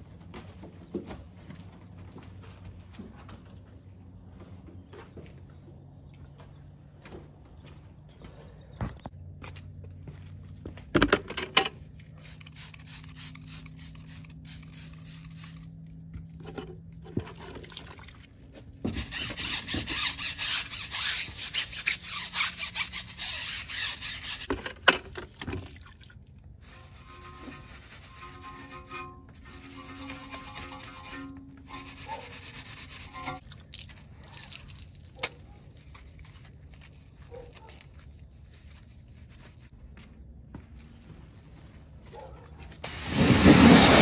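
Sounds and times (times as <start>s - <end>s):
brush scrubbing a tyre: 18.9s - 24.6s, 26.6s - 33.4s, 42.8s - 44.0s.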